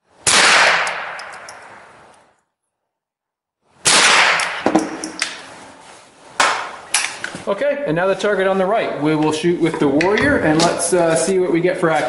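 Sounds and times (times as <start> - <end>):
rifle shots echoing: 0.2 - 1.9, 3.8 - 5.2.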